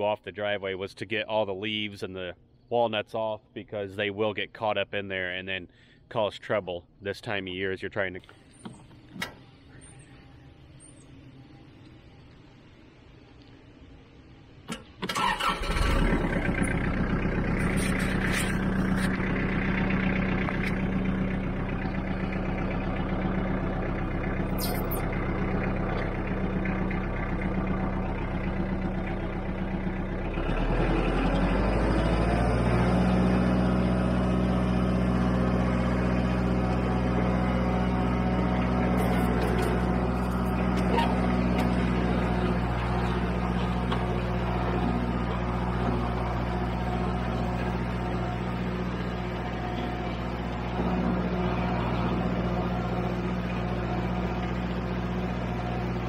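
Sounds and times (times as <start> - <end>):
tractor diesel engine running: 14.7 - 56.0.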